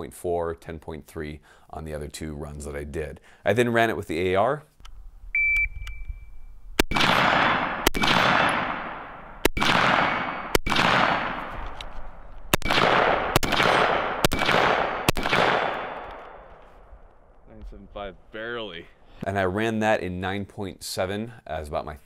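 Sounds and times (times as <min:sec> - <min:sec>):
shot timer beep: 0:05.3 - 0:06.5
rifle shots with echo: 0:06.8 - 0:11.8, 0:12.5 - 0:16.7.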